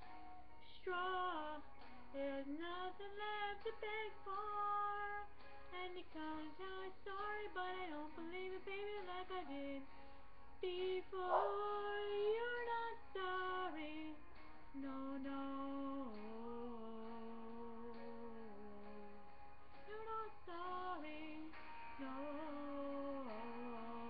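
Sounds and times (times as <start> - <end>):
woman singing pop song: 0.6 - 24.0.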